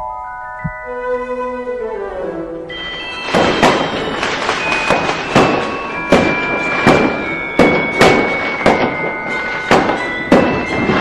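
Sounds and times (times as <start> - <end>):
high whistling tones: 0.0 - 11.0
firework bangs: 2.7 - 11.0.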